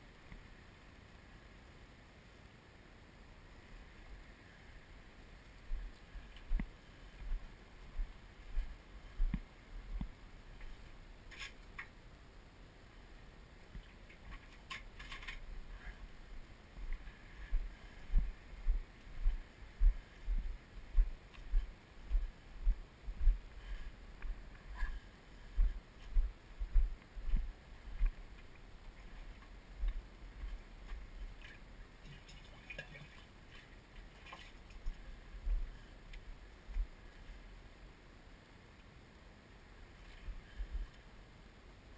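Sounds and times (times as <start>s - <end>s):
light rustles and clicks: 13.7s - 15.9s.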